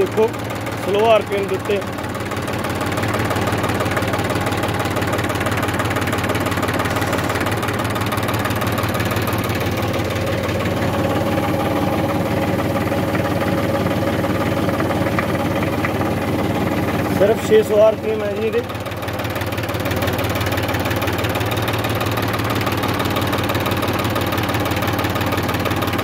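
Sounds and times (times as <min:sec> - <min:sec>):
diesel tractor engine idling: 0:00.0 - 0:26.0.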